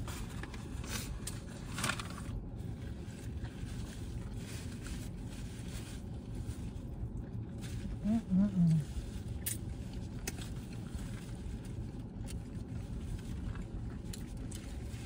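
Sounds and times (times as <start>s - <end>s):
soft rustling: 1.7s - 6.9s.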